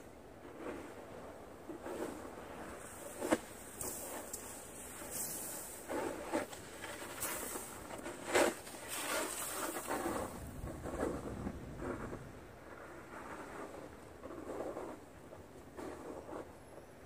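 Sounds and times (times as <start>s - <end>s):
snow sliding off roof: 0.0s - 17.0s
snow shovel scraping: 0.4s - 12.1s.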